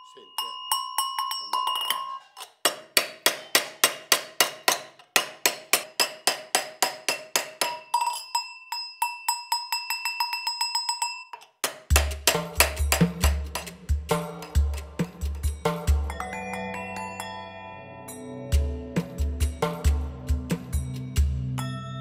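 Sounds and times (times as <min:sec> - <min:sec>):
cowbell ringing: 0:00.0 - 0:02.4, 0:07.7 - 0:11.4, 0:15.6 - 0:19.0
hammer striking metal cowbell: 0:00.0 - 0:13.7.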